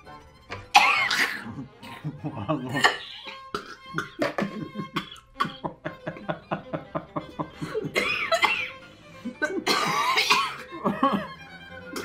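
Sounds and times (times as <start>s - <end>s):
woman gagging and retching: 0.7s - 2.0s, 2.6s - 5.6s.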